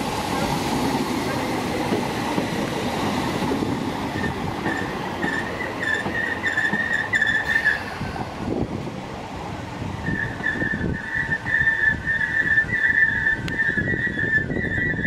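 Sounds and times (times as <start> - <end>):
train running gear rumble: 0.0 - 15.0
train wheels squealing: 4.1 - 8.1, 10.0 - 15.0.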